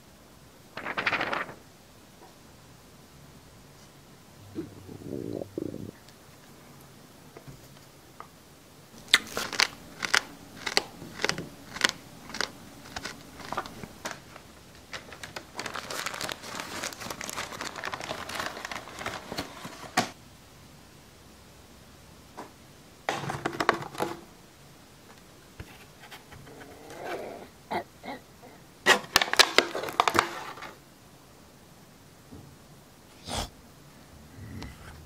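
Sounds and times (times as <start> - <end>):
plastic packaging crinkling: 0.8 - 1.7, 9.0 - 20.1, 29.0 - 30.8.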